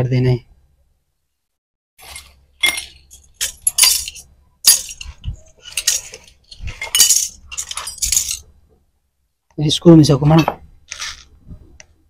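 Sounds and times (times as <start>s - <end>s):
metal tools clinking and rattling: 2.0s - 8.5s.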